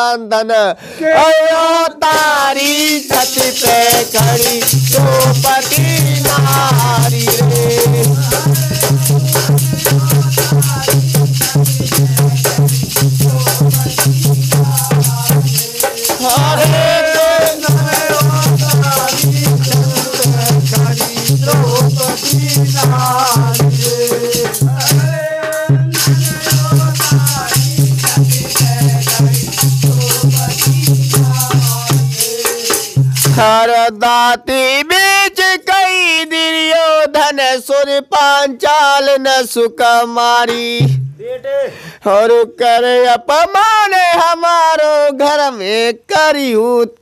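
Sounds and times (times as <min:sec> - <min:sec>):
drum beat: 0:02.0 - 0:33.6, 0:40.4 - 0:41.3.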